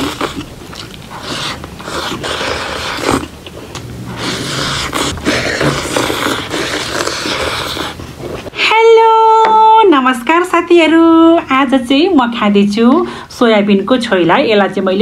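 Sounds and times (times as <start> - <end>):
person chewing: 0.0 - 8.5.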